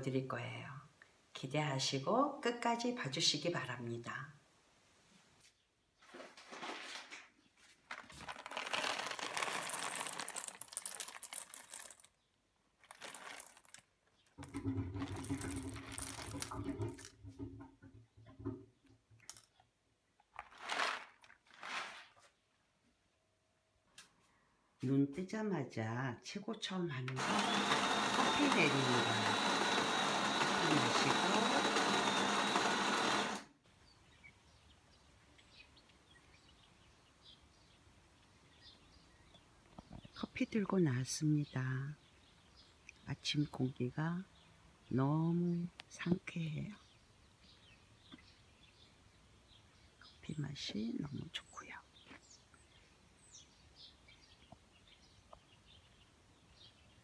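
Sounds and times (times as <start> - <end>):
paper bag crinkling: 6.2 - 12.2, 12.8 - 14.0, 15.1 - 17.0, 20.3 - 22.4
coffee beans rattling: 8.0 - 12.2, 12.8 - 17.2, 20.3 - 22.1, 27.2 - 33.4
espresso machine humming: 27.2 - 33.5.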